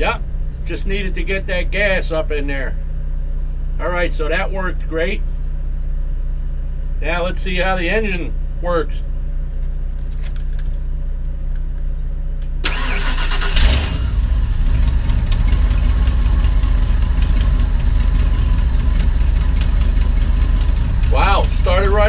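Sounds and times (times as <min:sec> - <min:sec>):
generator humming: 0:00.0 - 0:22.0
engine cranking and idling: 0:12.6 - 0:22.0.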